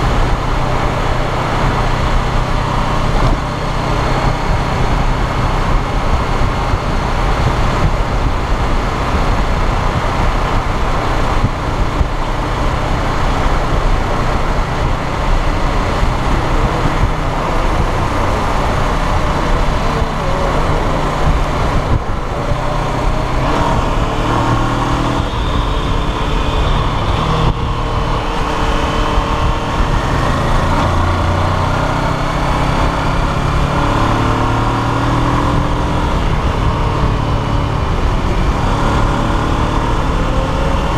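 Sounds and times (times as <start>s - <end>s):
motorcycle engine running: 0.0s - 40.9s
wind buffeting microphone: 0.0s - 40.9s.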